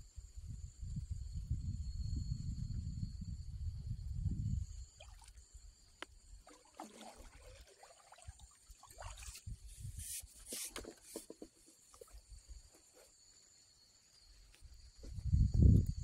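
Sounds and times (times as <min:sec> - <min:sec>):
water splashing: 0:06.4 - 0:09.5
water lapping against raft: 0:06.4 - 0:12.2.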